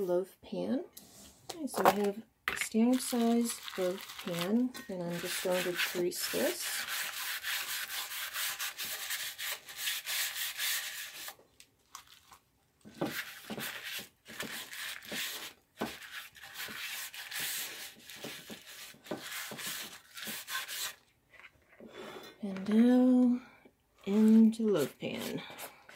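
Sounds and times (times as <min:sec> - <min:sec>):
paper rubbing inside a pan: 0:03.0 - 0:11.4, 0:13.1 - 0:21.0.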